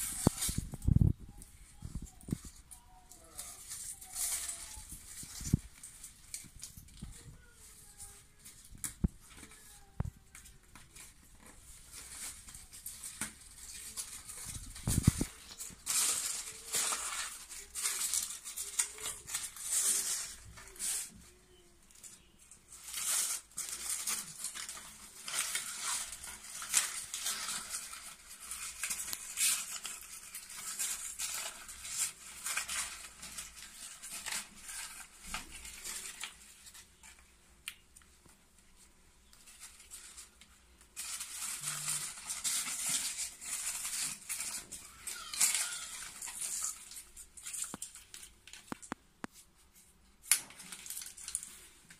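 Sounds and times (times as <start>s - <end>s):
sticker film rustling and crinkling: 0.0s - 51.9s.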